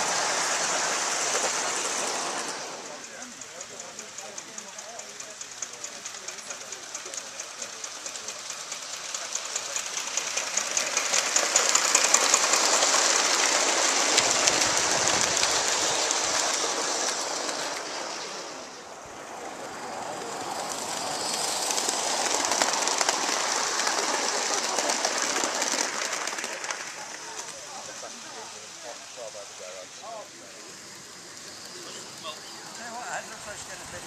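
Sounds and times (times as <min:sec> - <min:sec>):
model steam train passing: 0:00.0 - 0:34.0
exhaust beats and wheel clicks: 0:03.1 - 0:12.6.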